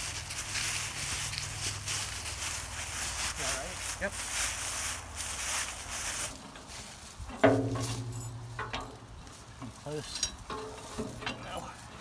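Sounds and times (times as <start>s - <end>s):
heavy steel parts clanking: 6.4s - 12.0s.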